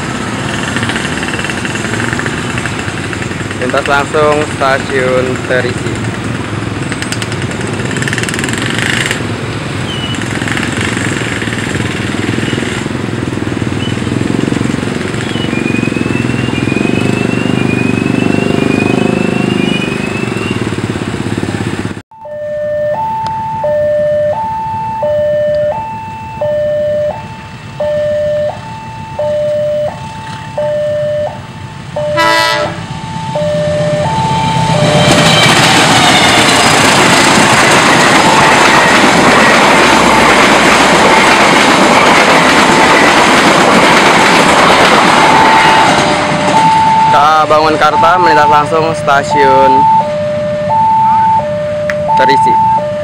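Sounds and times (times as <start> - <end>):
train rumbling along tracks: 0.0 - 22.0, 23.0 - 53.0
level crossing two-tone alarm: 22.2 - 35.3, 45.3 - 53.0
train horn toot: 32.1 - 32.9, 34.8 - 36.8.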